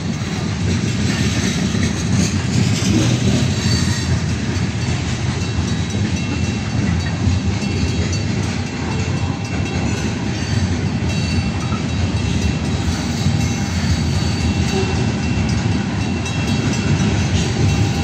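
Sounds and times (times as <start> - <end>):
freight train wheels rumbling on rails: 0.0 - 18.0.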